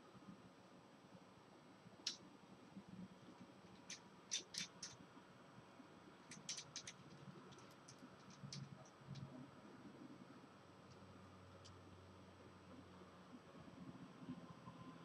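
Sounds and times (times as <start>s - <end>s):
computer keyboard typing: 3.7s - 5.0s, 6.3s - 9.3s.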